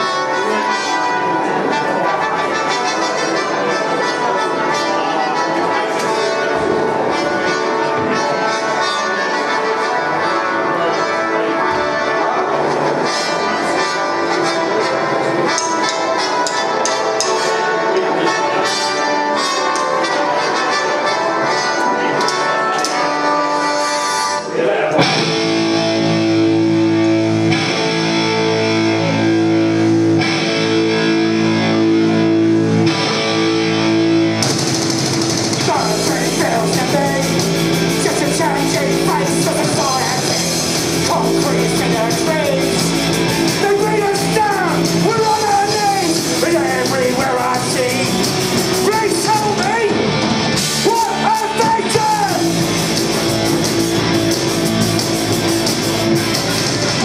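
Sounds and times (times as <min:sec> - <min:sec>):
distorted electric guitars: 0:21.7 - 0:57.0
drums: 0:23.9 - 0:57.0
bass guitar: 0:24.5 - 0:57.0
person singing lead vocal: 0:35.6 - 0:42.9.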